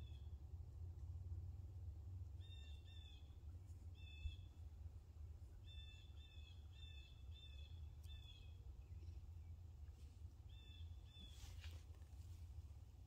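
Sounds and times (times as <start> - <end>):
low steady rumble: 0.0 - 13.0
bird calling faintly: 5.4 - 9.6, 10.2 - 12.2
brief rustle: 11.2 - 12.7.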